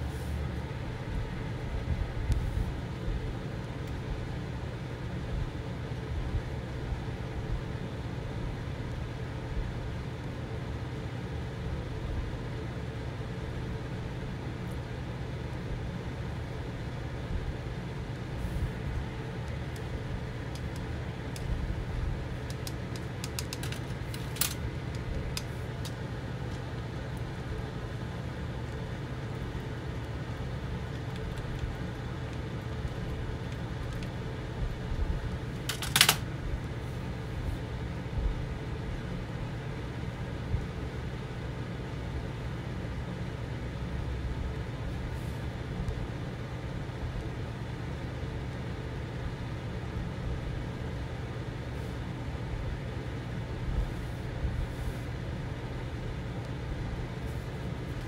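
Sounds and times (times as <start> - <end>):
low mechanical hum: 0.0 - 58.0
light clicks and taps: 22.4 - 26.8.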